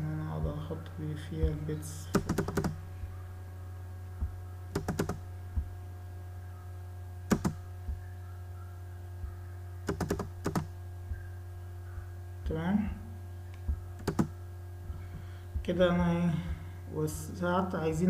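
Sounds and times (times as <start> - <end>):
steady low hum: 0.0 - 18.0
computer keyboard keystrokes: 2.2 - 2.8, 4.8 - 5.2, 7.3 - 7.6, 9.9 - 10.7, 14.0 - 14.3.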